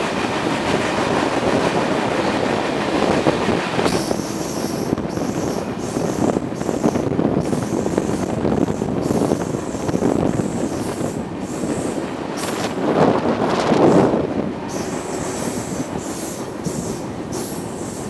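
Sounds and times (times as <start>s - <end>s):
train wheels rumbling and rattling: 0.0s - 18.0s
high wheel squeal: 3.9s - 12.8s, 14.7s - 18.0s.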